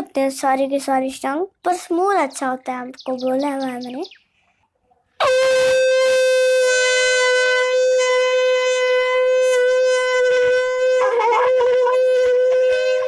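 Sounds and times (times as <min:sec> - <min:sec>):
conch shell blown: 0:05.2 - 0:13.0.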